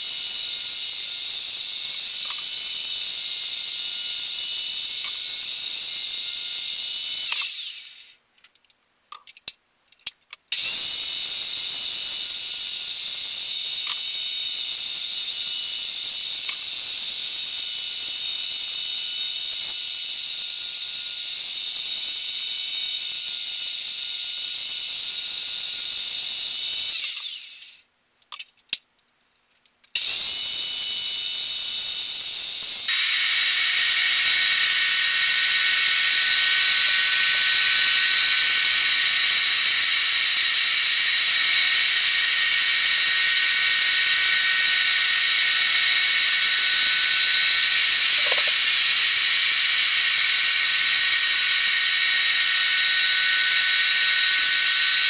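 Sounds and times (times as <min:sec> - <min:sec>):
table saw whining: 0:00.0 - 0:08.2, 0:10.6 - 0:24.2, 0:25.4 - 0:27.8, 0:30.0 - 0:55.0
saw blade ripping wooden board: 0:47.8 - 0:48.7.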